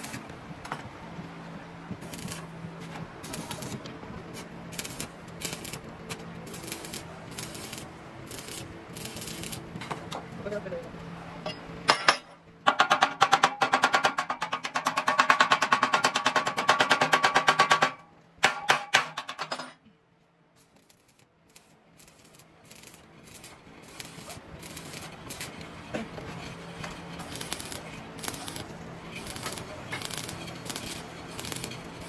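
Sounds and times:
metal clatter: 0:11.4 - 0:19.8, 0:22.0 - 0:32.0.

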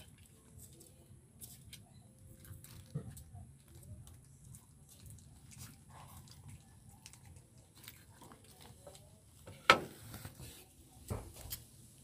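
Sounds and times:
puppies chewing and lapping: 0:02.3 - 0:09.1.

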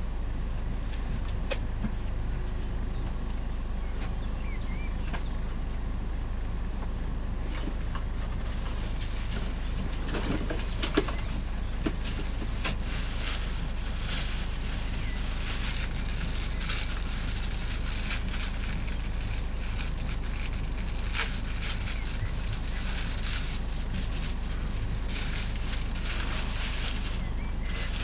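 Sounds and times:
vehicle engine and road rumble: 0:00.0 - 0:28.0
crackles and rattles: 0:07.4 - 0:28.0.

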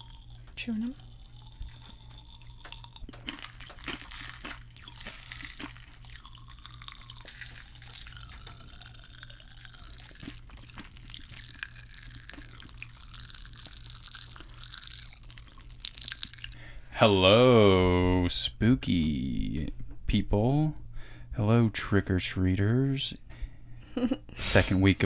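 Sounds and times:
popping candy crackling: 0:00.0 - 0:16.6
low steady hum: 0:00.0 - 0:25.0.

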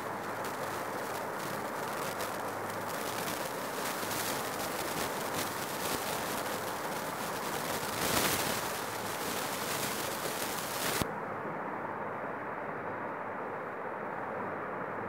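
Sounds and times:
background hiss: 0:00.0 - 0:11.1.

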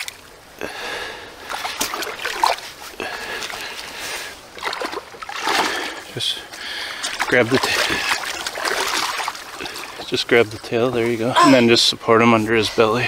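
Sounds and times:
water splashing from thrashing fish: 0:01.4 - 0:03.9, 0:04.5 - 0:10.2.

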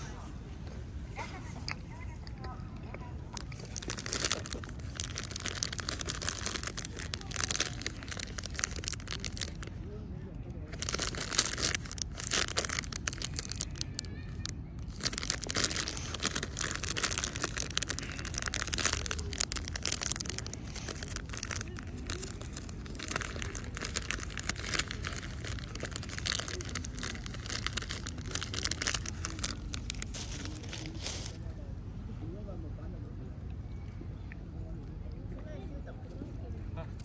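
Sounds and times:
steady low rumble: 0:00.0 - 0:32.1
food packaging crinkling: 0:03.3 - 0:09.7, 0:10.7 - 0:31.4.

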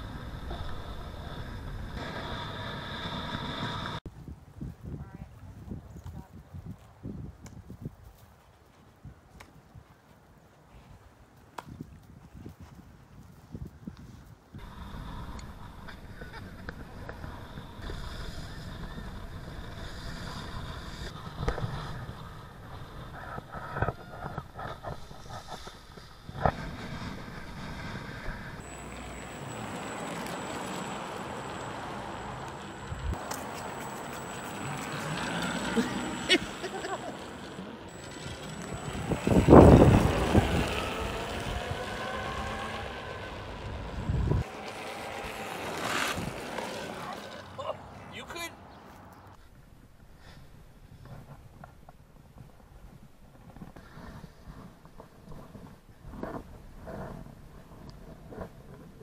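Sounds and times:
skateboard rolling over asphalt: 0:00.0 - 0:04.0, 0:14.6 - 0:48.0, 0:50.9 - 0:59.0
wind rushing over microphone: 0:00.0 - 0:08.2, 0:37.9 - 0:44.6
electric motors whining: 0:26.6 - 0:47.6.

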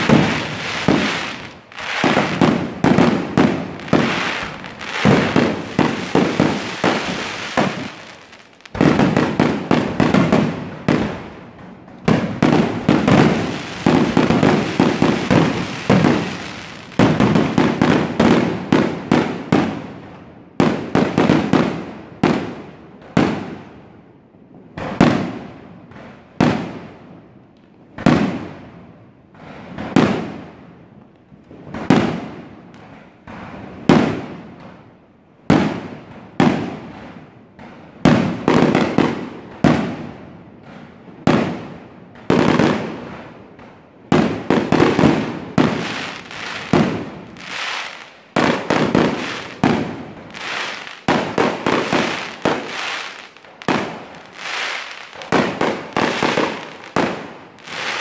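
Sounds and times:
fireworks bursting: 0:00.0 - 0:19.9, 0:35.5 - 0:58.0.

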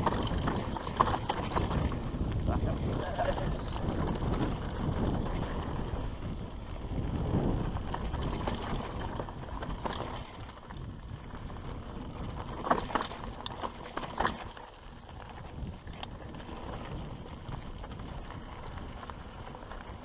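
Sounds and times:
bike rattling knocks: 0:00.0 - 0:02.0, 0:11.8 - 0:14.7
tyres rumbling over dirt: 0:00.0 - 0:20.0
wind buffeting microphone: 0:00.0 - 0:20.0.

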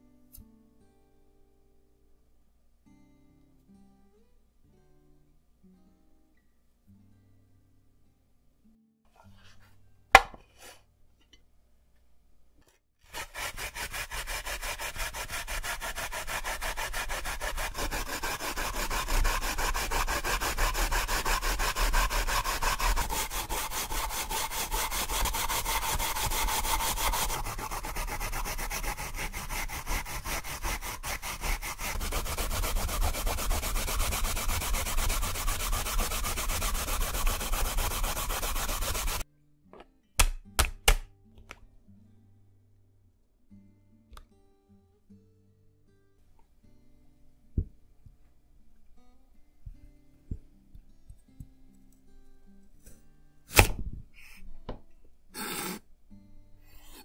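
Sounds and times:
radish being grated: 0:13.1 - 0:39.2, 0:55.4 - 0:55.8, 0:56.6 - 0:57.0.

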